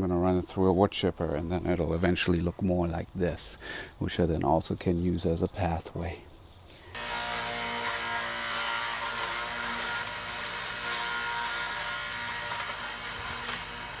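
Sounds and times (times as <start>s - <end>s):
branches being chipped: 4.2s - 14.0s
wood chipper motor whine: 6.9s - 14.0s.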